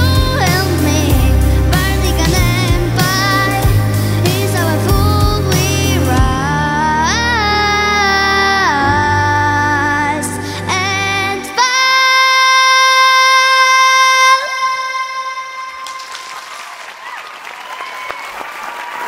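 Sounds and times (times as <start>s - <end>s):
backing music: 0.0s - 12.3s
girl singing high note: 0.0s - 16.4s
audience applause: 15.7s - 19.0s.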